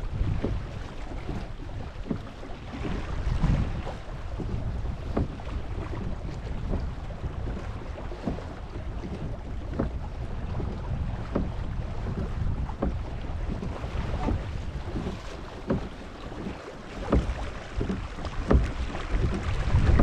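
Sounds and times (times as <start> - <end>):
water moving past kayak: 0.0 - 20.0
wind buffeting microphone: 0.0 - 20.0
light knocks: 17.1 - 19.4.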